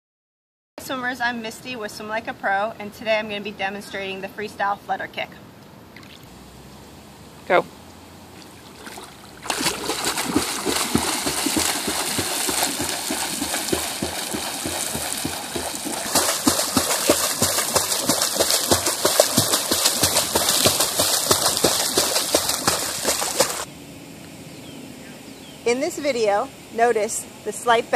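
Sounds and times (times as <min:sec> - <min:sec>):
feet splashing water: 0:08.3 - 0:23.7.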